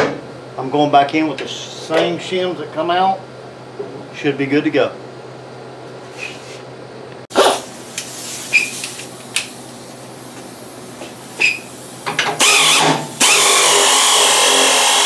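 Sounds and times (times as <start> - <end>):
power ratchet running: 12.3 - 15.0.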